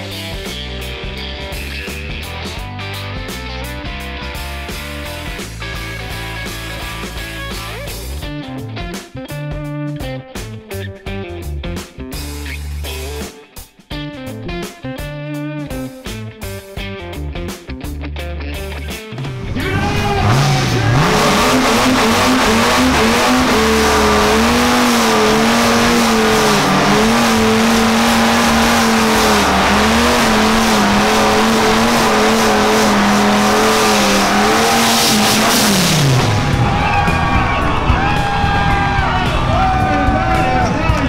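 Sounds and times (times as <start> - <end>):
car engine revving: 19.2 - 41.0.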